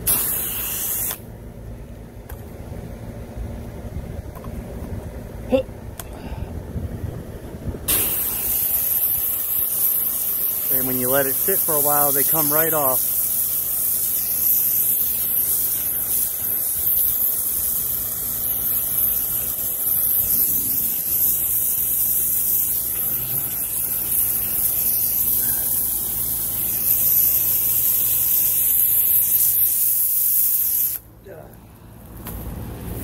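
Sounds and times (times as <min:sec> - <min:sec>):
pressure washer spray hissing: 0:00.0 - 0:01.2, 0:07.9 - 0:31.1
low steady hum: 0:00.0 - 0:29.1.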